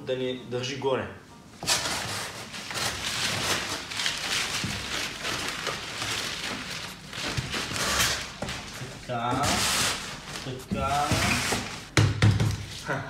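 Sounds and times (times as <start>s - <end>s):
bubble wrap crackling: 1.6s - 11.9s.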